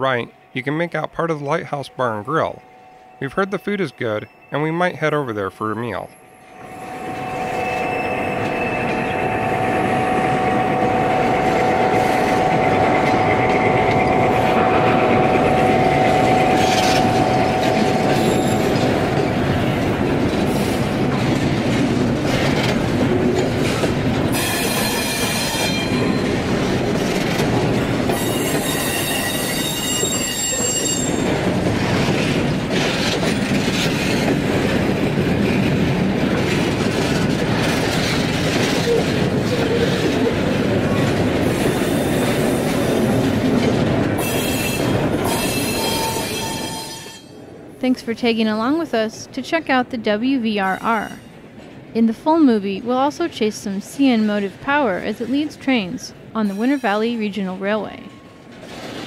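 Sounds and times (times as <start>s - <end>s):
model locomotive humming: 6.0s - 32.5s
train wheels clicking over track: 7.1s - 47.3s.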